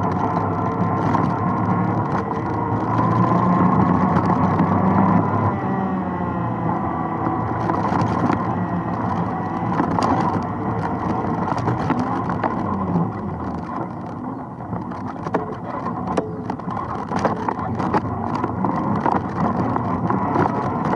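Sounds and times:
clicks and knocks from bumps: 0:00.0 - 0:05.2, 0:07.2 - 0:20.9
atv engine running: 0:00.0 - 0:20.9.

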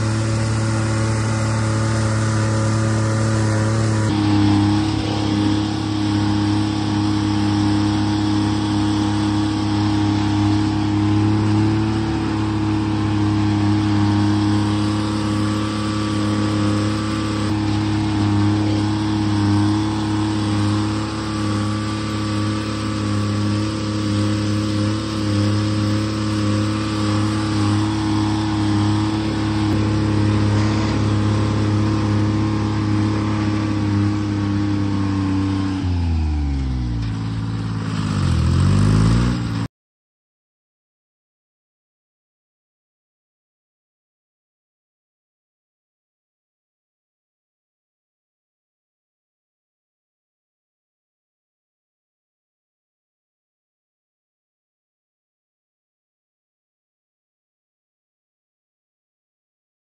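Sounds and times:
diesel engine running: 0:00.0 - 0:39.7.

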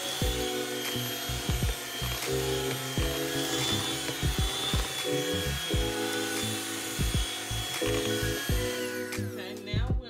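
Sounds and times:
electric mixer whining: 0:00.0 - 0:09.9
background music with bass beat: 0:04.2 - 0:10.0.

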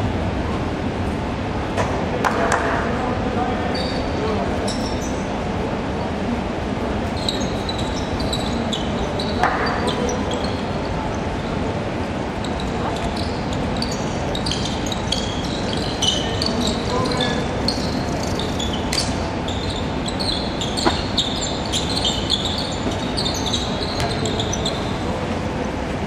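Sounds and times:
shoes squeaking on hardwood: 0:12.4 - 0:25.0.

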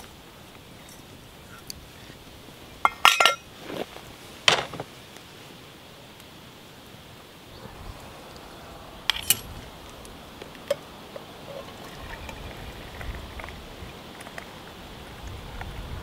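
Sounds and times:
steel pot clinking on metal stand: 0:02.8 - 0:03.5
water trickling into metal mug: 0:10.6 - 0:13.5.

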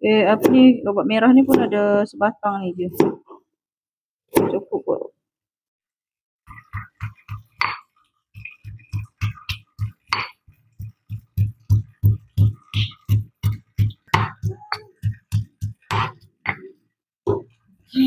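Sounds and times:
stone pestle pounding in mortar: 0:08.4 - 0:16.6.

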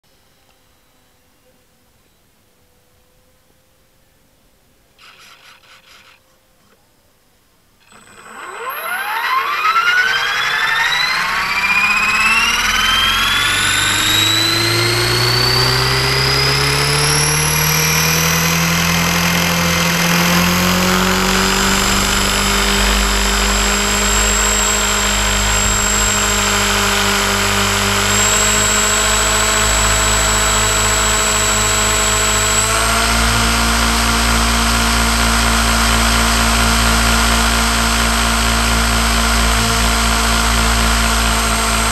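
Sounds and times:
model aircraft motor whine: 0:05.0 - 0:06.2, 0:07.8 - 0:41.9.

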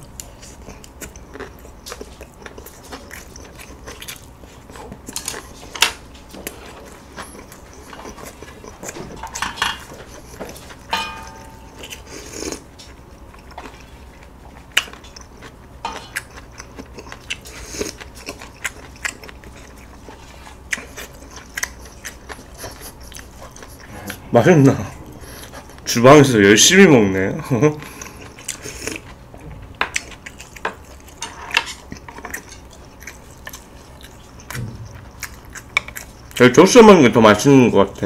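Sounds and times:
person chewing: 0:00.0 - 0:25.9, 0:27.6 - 0:36.4
utensils clicking against dishes: 0:29.8 - 0:33.2.

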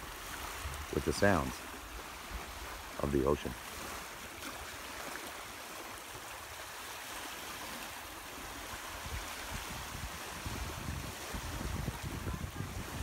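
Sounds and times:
wind buffeting microphone: 0:00.0 - 0:04.7, 0:07.7 - 0:13.0
waves washing over shingle: 0:00.0 - 0:13.0.

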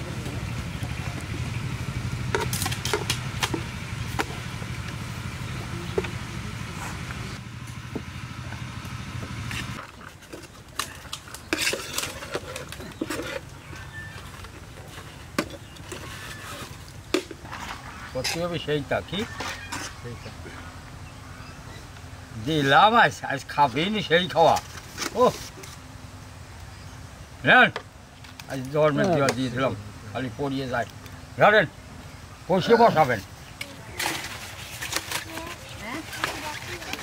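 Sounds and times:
low motor hum: 0:00.0 - 0:22.4, 0:25.6 - 0:32.5
metal spoons scraping and clinking: 0:10.8 - 0:13.4.

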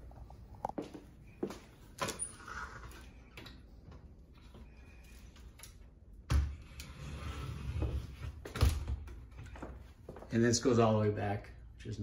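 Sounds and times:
closet door clicks and rattles: 0:08.5 - 0:09.3.

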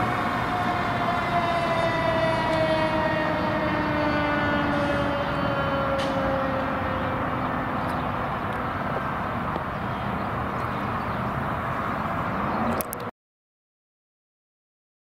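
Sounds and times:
siren tone falling in pitch: 0:00.0 - 0:08.2
road and traffic noise: 0:00.0 - 0:13.1.

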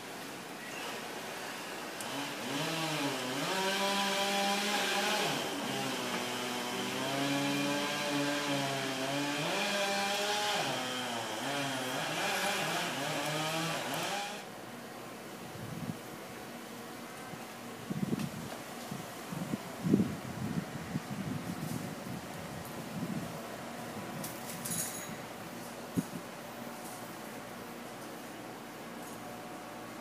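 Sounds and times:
small engine revving: 0:02.0 - 0:14.4.

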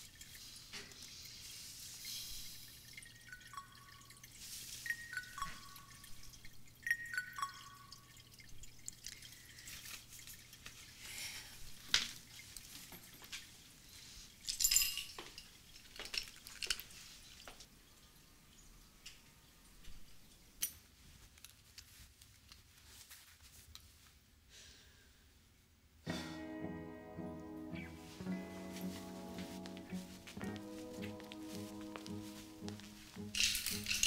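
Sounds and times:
water plinks and clicks: 0:00.0 - 0:01.1, 0:02.6 - 0:11.0
water trickling into aquarium: 0:00.0 - 0:20.6.

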